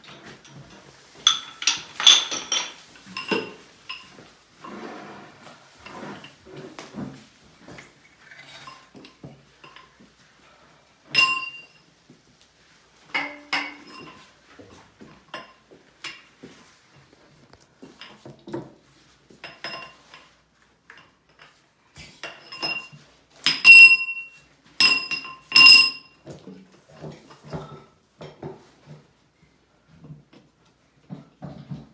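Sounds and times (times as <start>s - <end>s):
metal parts clinking and clanking: 0.2s - 4.1s.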